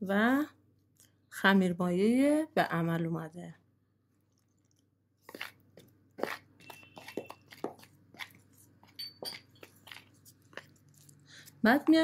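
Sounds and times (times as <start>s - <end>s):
spoon scraping and tapping bowl: 5.3s - 11.1s.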